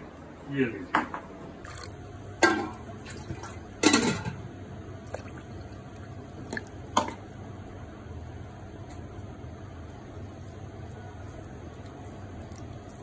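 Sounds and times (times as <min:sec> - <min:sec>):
water splashing into a bowl: 0:01.7 - 0:04.3, 0:05.0 - 0:07.2
water dripping: 0:05.0 - 0:07.2.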